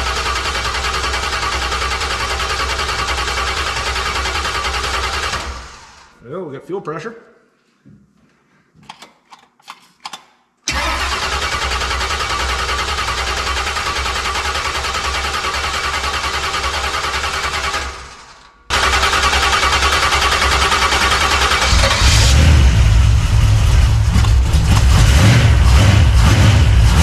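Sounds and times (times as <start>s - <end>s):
engine starter cranking: 10.7s - 22.5s.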